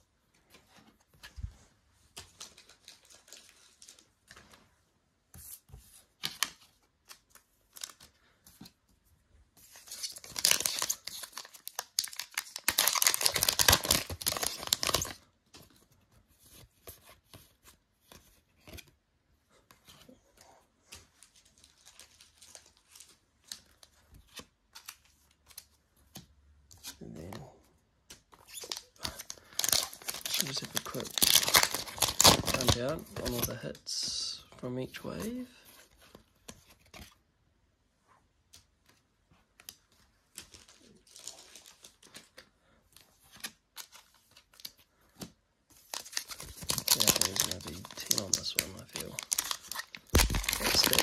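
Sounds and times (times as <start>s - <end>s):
cards rustling and clicking: 0.3s - 4.6s, 5.3s - 19.0s, 19.6s - 33.7s, 38.4s - 51.0s
foil wrapper crinkling: 10.0s - 15.2s, 28.6s - 33.4s, 45.9s - 51.0s.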